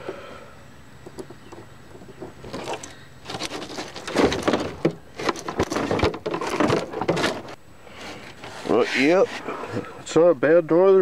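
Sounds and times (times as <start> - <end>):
knocking and rattling in a canoe: 1.1 - 7.6.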